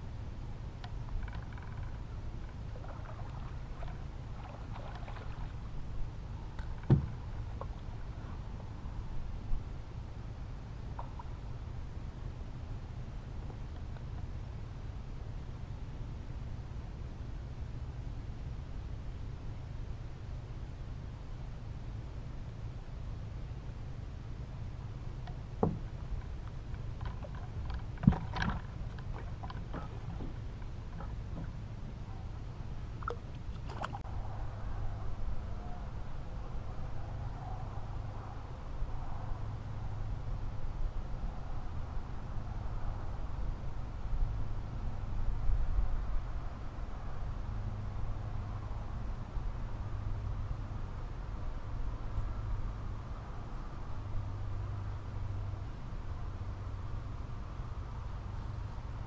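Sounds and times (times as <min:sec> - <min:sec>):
low steady rumble: 0:00.0 - 0:59.0
light clicking and rustling: 0:00.8 - 0:02.6, 0:25.2 - 0:31.6
water splashing against boat: 0:01.0 - 0:08.8, 0:25.3 - 0:34.0
thump against boat: 0:06.6 - 0:07.7, 0:25.6 - 0:25.9, 0:27.0 - 0:31.6.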